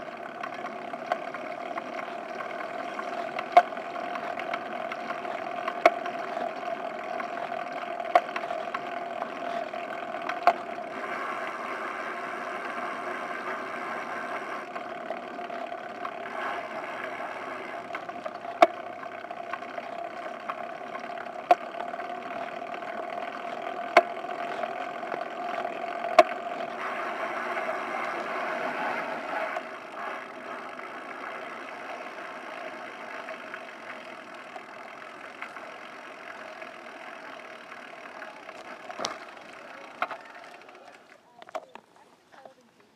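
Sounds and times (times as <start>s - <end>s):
wind: 0.0s - 42.9s.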